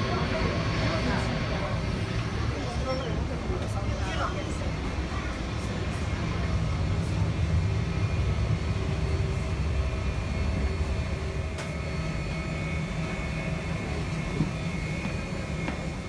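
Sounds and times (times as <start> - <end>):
parked airliner rumble: 0.0 - 16.0.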